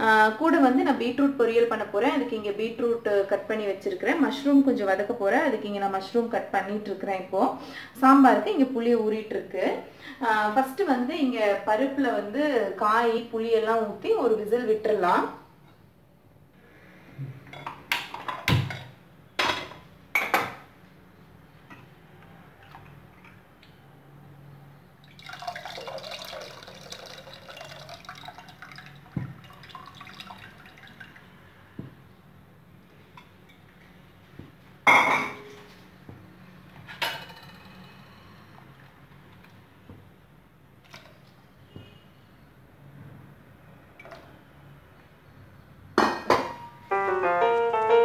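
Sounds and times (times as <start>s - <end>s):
liquid pouring into pot: 25.0s - 31.4s.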